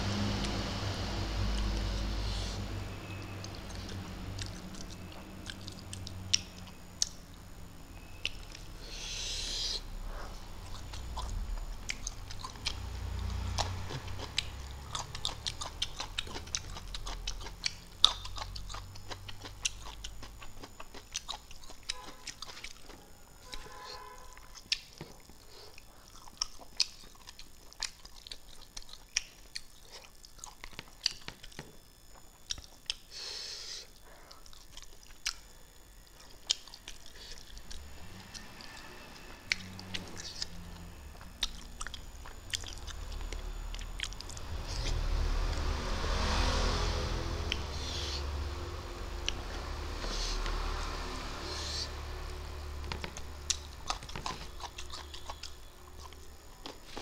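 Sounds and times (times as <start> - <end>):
chewing and lip-smacking: 3.2 - 7.3, 8.0 - 9.8, 10.6 - 35.6, 36.2 - 38.8, 39.4 - 45.0, 53.0 - 57.0.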